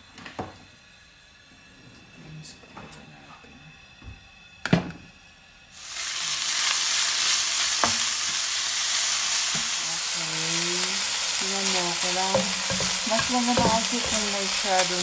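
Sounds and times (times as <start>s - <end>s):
meat sizzling in hot oil: 5.8s - 15.0s
spatula tapping pan: 12.1s - 15.0s.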